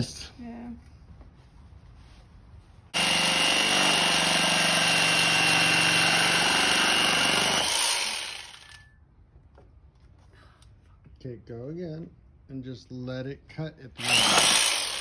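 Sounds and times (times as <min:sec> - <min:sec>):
jigsaw cutting wood: 0:03.0 - 0:08.8, 0:14.0 - 0:15.0.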